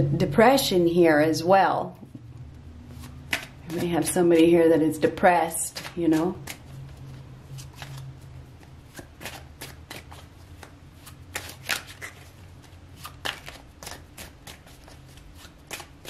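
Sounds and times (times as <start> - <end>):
faint low hum: 0.0 - 15.8
cards being shuffled: 2.9 - 4.6, 5.6 - 16.0.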